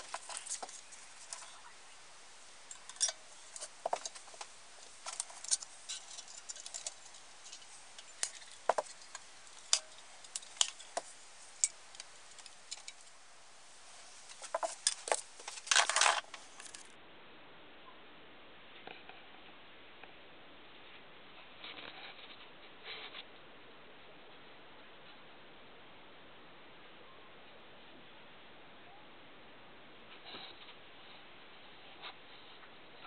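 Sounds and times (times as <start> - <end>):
metal stove parts clicking: 0.0 - 1.5, 2.7 - 13.2, 14.2 - 16.8
metal parts rattle: 0.0 - 1.6, 2.7 - 13.2, 14.1 - 16.9.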